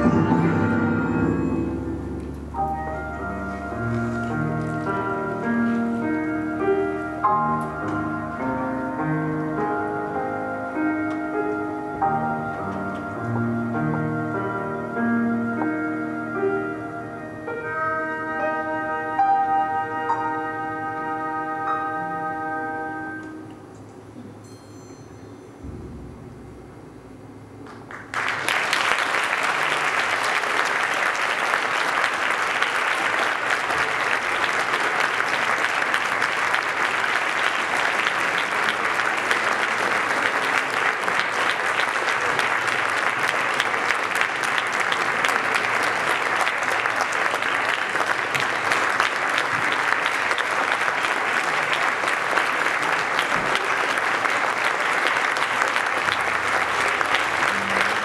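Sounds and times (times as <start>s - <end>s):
audience applause: 27.6s - 58.0s.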